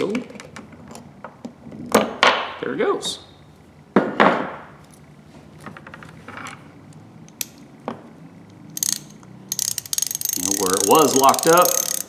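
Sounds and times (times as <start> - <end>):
ratchet clicks: 8.7 - 12.0.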